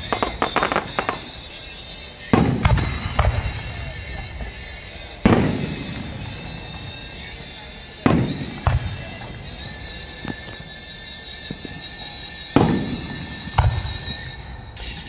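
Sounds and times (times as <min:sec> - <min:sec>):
fireworks crackling pops: 0:00.0 - 0:15.0
firework shell bursts booming: 0:02.3 - 0:04.6, 0:05.2 - 0:07.3, 0:08.0 - 0:09.6, 0:12.6 - 0:15.0.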